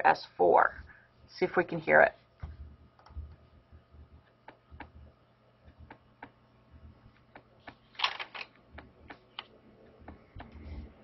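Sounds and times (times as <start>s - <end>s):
sharp clicks and taps: 8.7s - 10.6s.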